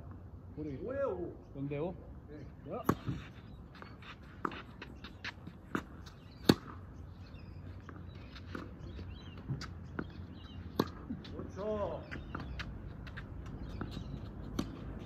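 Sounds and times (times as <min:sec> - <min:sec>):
footsteps on court: 0:02.8 - 0:06.7, 0:07.6 - 0:15.0
tennis ball bouncing: 0:02.8 - 0:15.0
tennis racket hitting ball: 0:04.4 - 0:06.8, 0:10.7 - 0:11.3.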